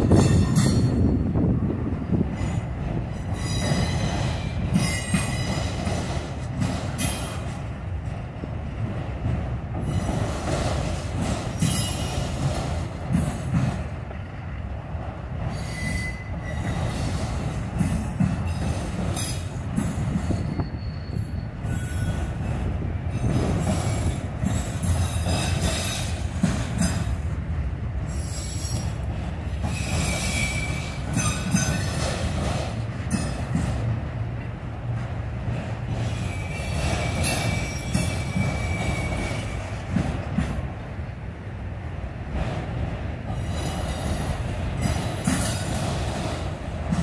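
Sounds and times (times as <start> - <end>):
train wheels rumbling on rails: 0.0 - 47.0
high wheel squeals: 15.5 - 16.8, 20.2 - 22.4, 29.6 - 32.0, 36.0 - 39.6.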